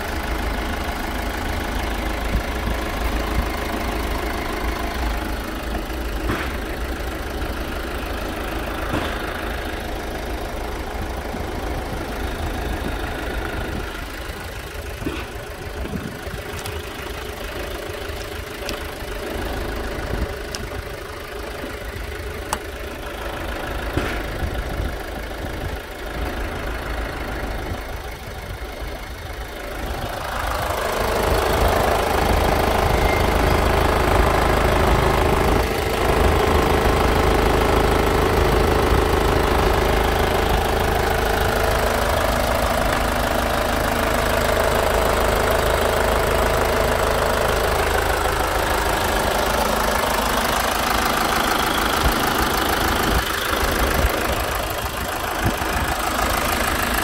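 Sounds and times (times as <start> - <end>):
diesel engine idling: 0.0 - 57.0.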